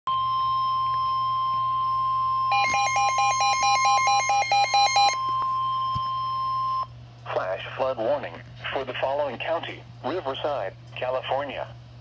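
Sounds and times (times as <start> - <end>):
weather radio alarm tone: 2.1 - 6.8.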